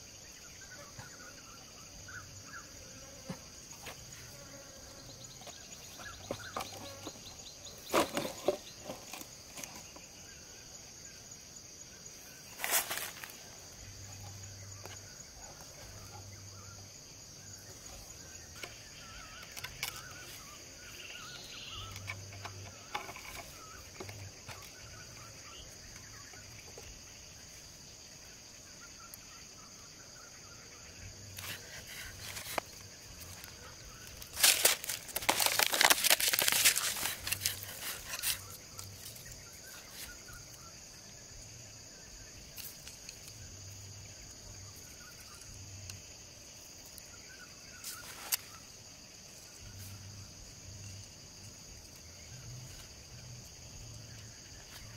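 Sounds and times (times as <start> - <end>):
high-pitched insect chorus: 0.0 - 54.9
plastic bottle crinkling: 34.2 - 38.5.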